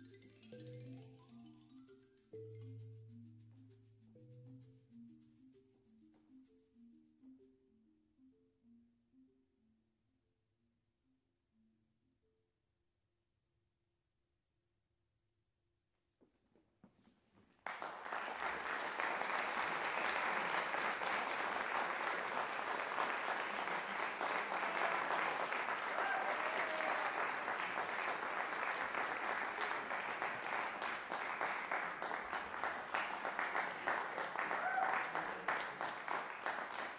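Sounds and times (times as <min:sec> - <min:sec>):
audience applauding: 0:17.6 - 0:36.9.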